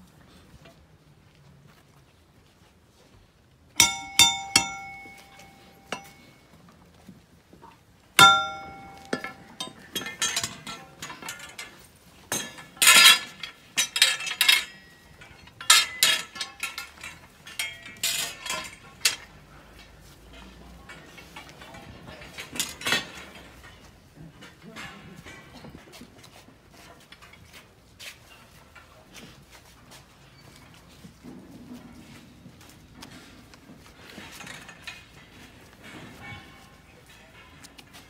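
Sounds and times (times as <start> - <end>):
clinking and rattling: 3.8 - 6.4, 8.2 - 19.5.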